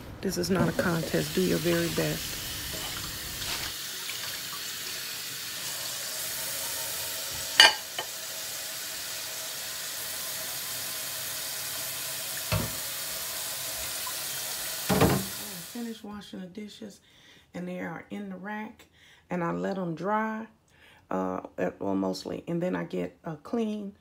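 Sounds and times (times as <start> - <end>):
faucet running into sink: 0.6 - 15.8
dishes knocking: 7.6 - 8.1, 12.5 - 12.8, 14.9 - 15.3.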